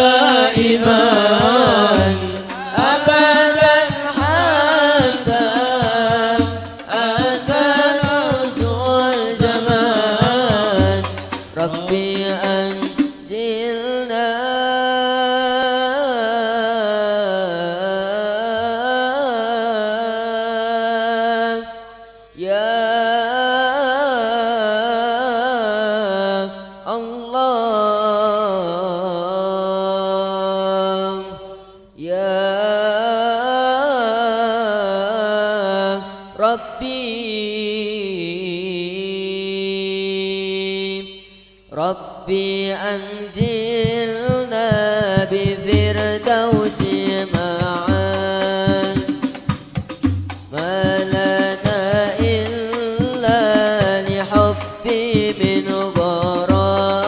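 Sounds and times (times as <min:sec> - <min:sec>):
men chanting: 0:00.0 - 0:14.6, 0:41.8 - 0:57.0
frame drum beats: 0:00.6 - 0:13.3, 0:43.4 - 0:57.0.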